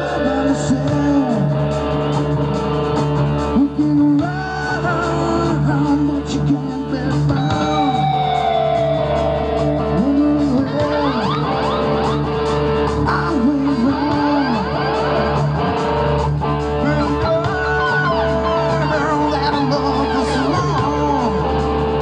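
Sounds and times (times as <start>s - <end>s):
drum kit: 0.0s - 22.0s
electric guitars: 0.0s - 22.0s.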